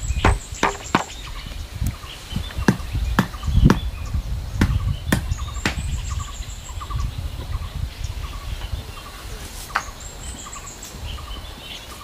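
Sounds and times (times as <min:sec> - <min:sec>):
birds chirping faintly: 0:00.0 - 0:12.0
wooden club knocking on bamboo: 0:00.2 - 0:01.2.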